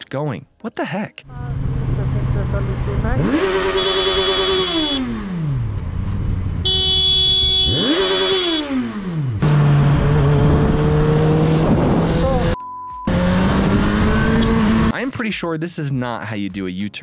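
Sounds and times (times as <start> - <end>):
horn honking: 1.3 - 5.8, 6.6 - 9.8
motorcycle cruising: 1.3 - 15.0
motorcycle engine revving: 1.3 - 15.0.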